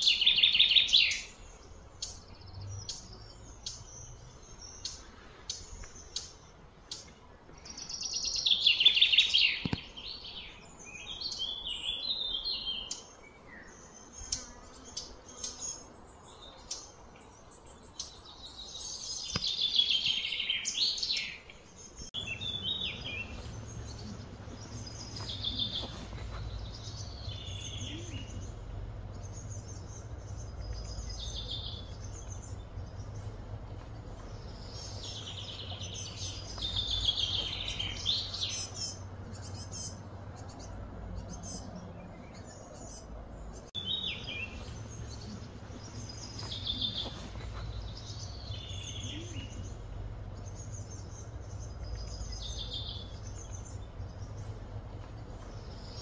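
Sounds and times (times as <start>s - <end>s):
birds chirping: 0.0s - 56.0s
low background hum: 20.9s - 56.0s.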